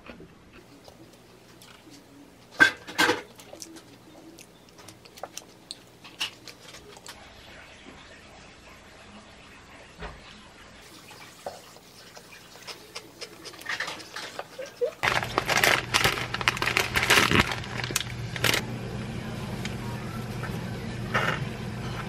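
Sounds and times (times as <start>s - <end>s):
plastic packet crinkling: 15.0s - 18.6s.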